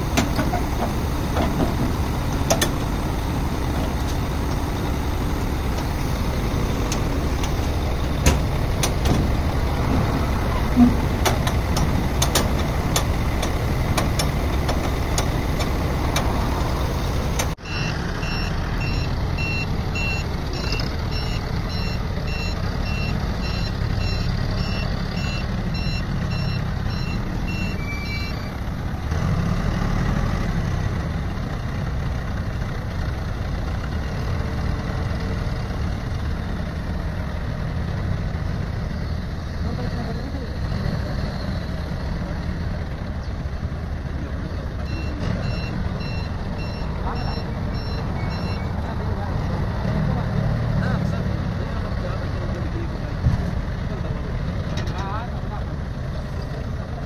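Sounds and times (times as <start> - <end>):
forklift engine running: 0.0 - 57.0
reversing alarm beeping: 17.6 - 28.6, 44.8 - 48.8.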